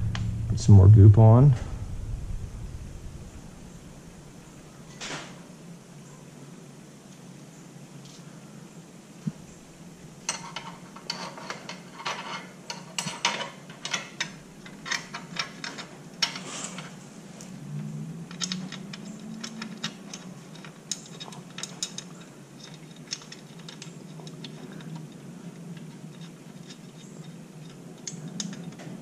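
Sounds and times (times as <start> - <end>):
metallic clicks of bolt and nut: 10.3 - 16.9, 18.3 - 29.0.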